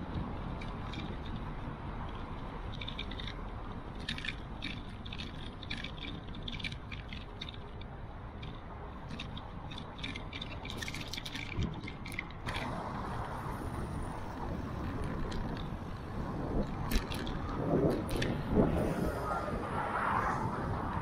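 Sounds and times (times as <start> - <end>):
bicycle rolling over paving: 0.0 - 7.7, 8.4 - 21.0
bicycle rattling clicks: 0.0 - 18.7.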